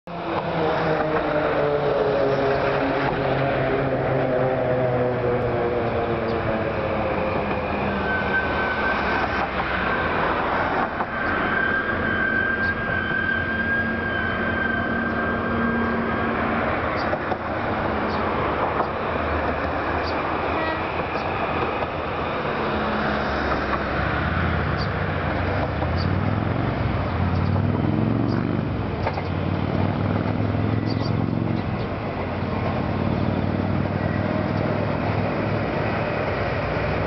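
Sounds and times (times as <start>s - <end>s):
engine drone: 0.1s - 37.0s
thin high whine: 11.1s - 16.4s.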